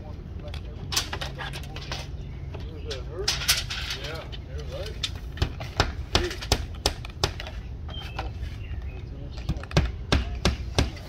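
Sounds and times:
sharp knocks and taps: 8.9 - 11.0.

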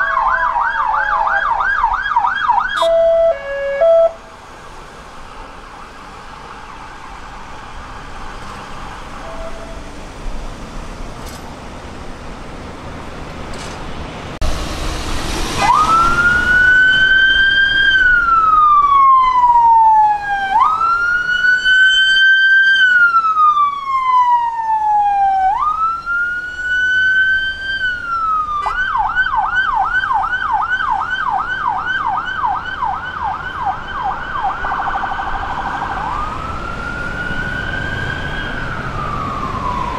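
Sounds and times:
police siren wailing and yelping: 0.0 - 4.2, 15.5 - 39.9.

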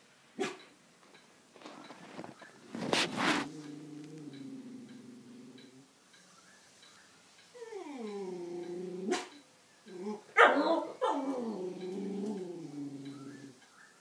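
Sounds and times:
dog barking: 0.4 - 0.6, 9.1 - 9.4, 10.4 - 11.3
dog yelping: 10.0 - 11.6
dog howling: 10.1 - 13.6.

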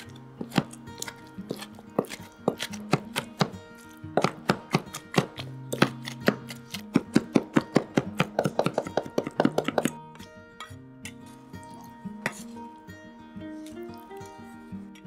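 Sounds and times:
knife chopping on cutting board: 0.0 - 10.0
plucked guitar background music: 0.0 - 15.0.

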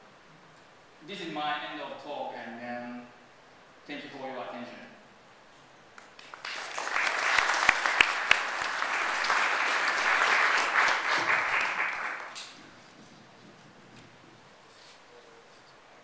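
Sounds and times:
audience applauding: 6.0 - 12.4.

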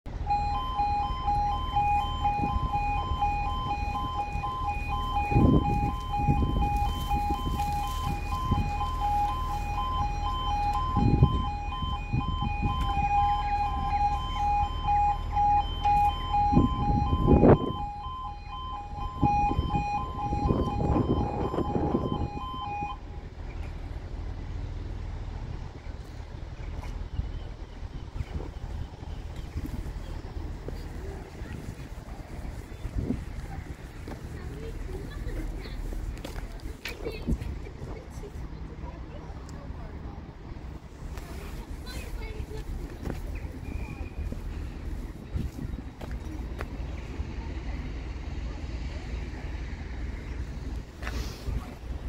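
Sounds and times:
low road traffic rumble: 0.1 - 52.0
level crossing two-tone alarm: 0.2 - 23.0.

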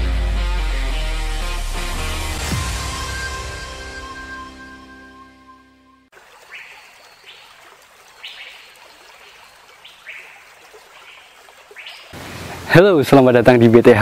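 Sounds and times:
music track: 0.0 - 6.1
birds chirping: 5.1 - 12.7
steady outdoor hiss: 6.1 - 14.0.

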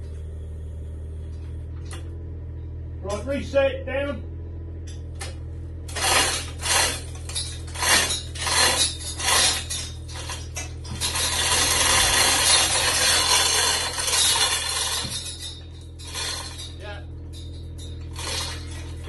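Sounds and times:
hoist pawl ratcheting: 5.9 - 16.8, 17.4 - 19.0
chain hoist chain clattering: 5.9 - 19.0.

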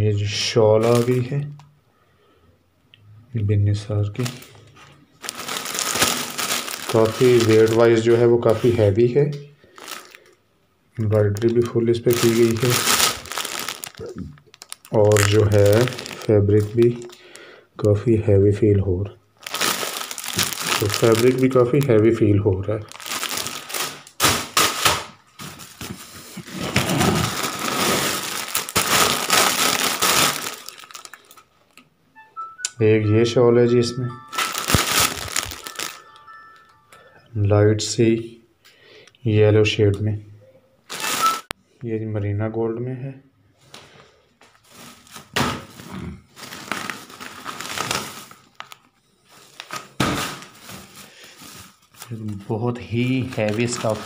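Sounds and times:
plastic packaging crinkling: 0.8 - 1.4, 4.1 - 9.0, 9.6 - 10.4, 11.0 - 17.5, 19.4 - 31.8, 34.2 - 36.7, 40.9 - 41.5, 44.4 - 54.0.

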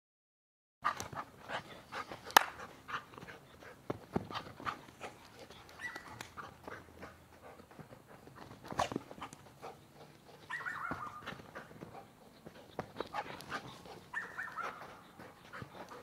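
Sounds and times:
scuffing steps on loose soil: 2.9 - 16.0
dog whining: 10.5 - 11.4, 14.1 - 14.9.

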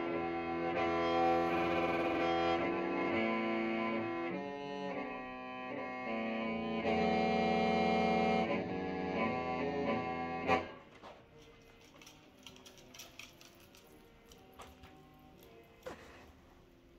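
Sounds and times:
mouth organ held chord: 0.0 - 10.8
faint clicks and knocks: 10.9 - 16.4.

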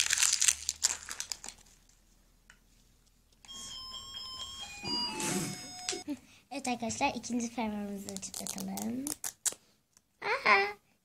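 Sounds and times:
plastic wrapping rustling: 0.0 - 2.1
electronic beeping melody: 3.5 - 6.0.

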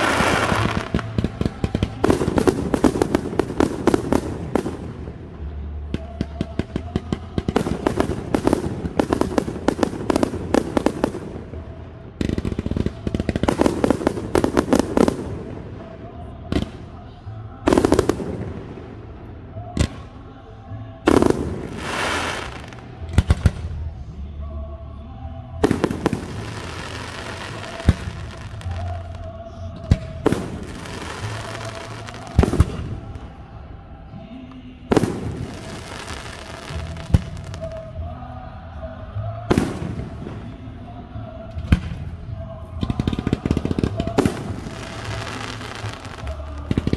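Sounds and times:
fireworks crackling and banging: 0.0 - 20.1, 21.0 - 23.9, 25.6 - 33.4, 34.9 - 37.9, 42.8 - 46.9.

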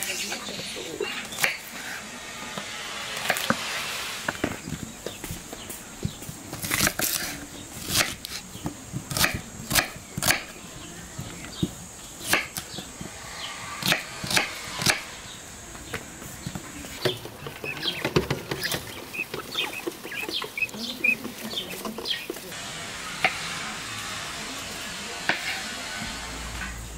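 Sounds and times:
knife chopping on wooden board: 12.2 - 12.6
guinea fowl chirping: 17.0 - 22.5.

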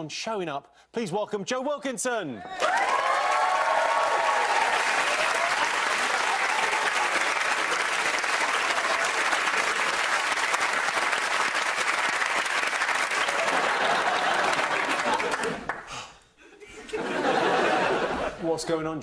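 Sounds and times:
audience applauding: 2.6 - 16.0.

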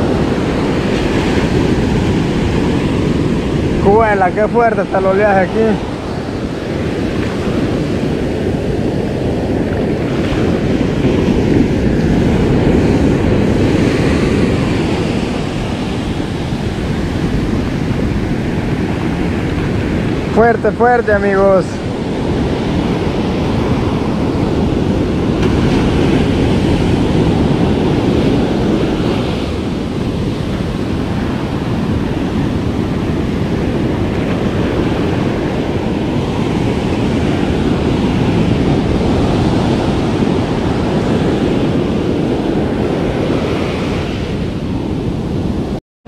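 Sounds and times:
ocean waves breaking: 0.0 - 45.8.

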